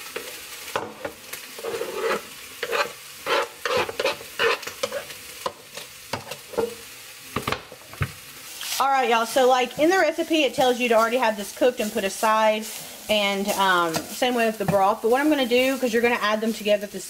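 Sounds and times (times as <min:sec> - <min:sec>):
spoon scraping in a pan: 0:00.0 - 0:06.9
vegetables sizzling in oil: 0:00.0 - 0:17.0.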